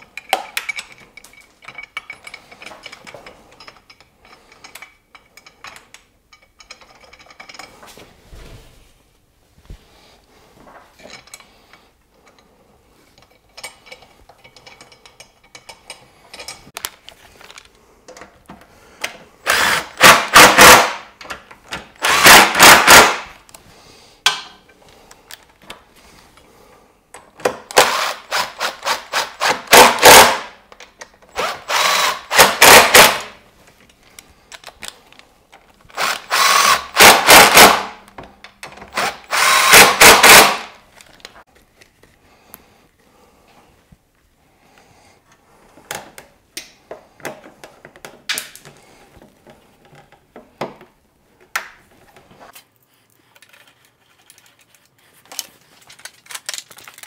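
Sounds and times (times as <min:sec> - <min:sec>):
impact driver hammering: 0:19.5 - 0:21.1, 0:22.0 - 0:23.2, 0:27.5 - 0:30.6, 0:31.4 - 0:33.3, 0:36.0 - 0:38.0, 0:38.9 - 0:40.7.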